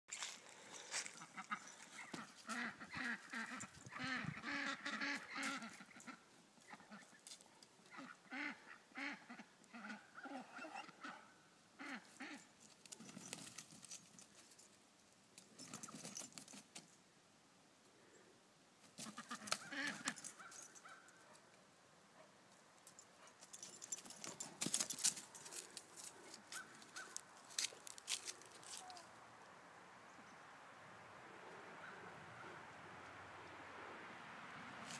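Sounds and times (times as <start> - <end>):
rustling and scuffling: 0.1 - 3.9, 12.6 - 14.8, 22.9 - 29.1
geese honking: 1.2 - 7.1.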